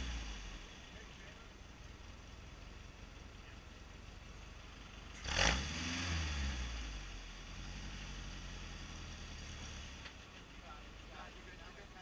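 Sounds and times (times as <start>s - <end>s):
truck engine revving: 0.0s - 1.1s, 5.1s - 10.1s.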